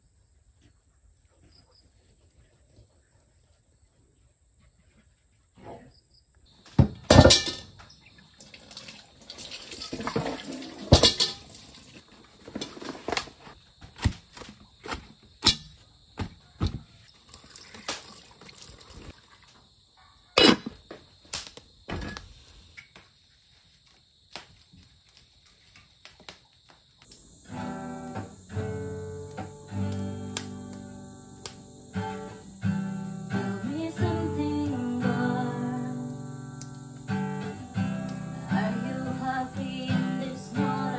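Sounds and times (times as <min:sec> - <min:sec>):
pot and fruit clattering: 0:06.8 - 0:13.3
water pouring into metal pot: 0:08.2 - 0:12.0, 0:17.2 - 0:19.5
acoustic guitar strumming: 0:27.3 - 0:40.9.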